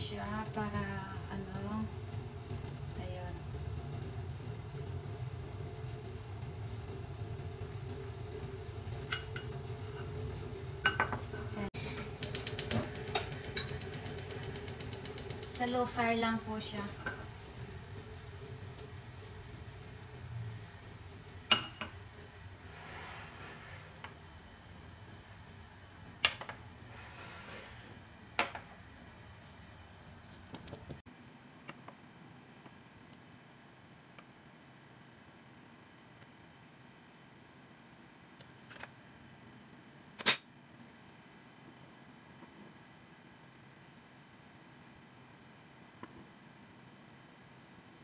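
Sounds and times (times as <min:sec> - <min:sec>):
steady low hum: 0:00.0 - 0:31.3
kitchenware clinking: 0:10.8 - 0:11.3, 0:21.5 - 0:22.0.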